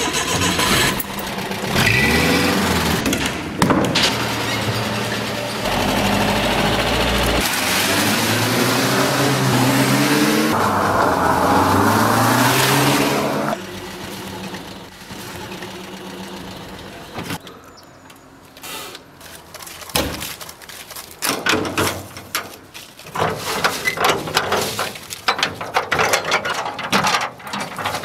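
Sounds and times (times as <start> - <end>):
truck engine humming: 0.0 - 17.4.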